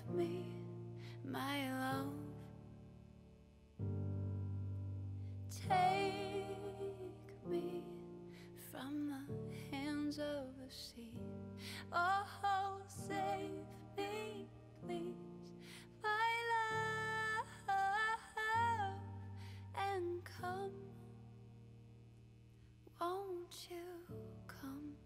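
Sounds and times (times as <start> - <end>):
person singing with vibrato: 5.5 - 21.0.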